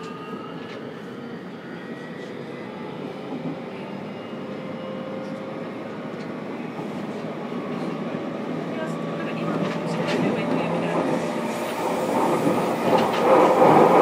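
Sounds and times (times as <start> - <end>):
train wheels rumbling on rail: 4.6 - 14.0.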